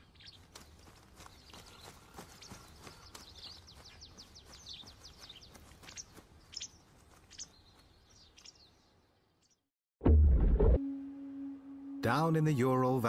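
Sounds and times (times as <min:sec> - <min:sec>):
faint forest ambience: 0:00.0 - 0:09.7
small birds chirping: 0:00.0 - 0:09.7.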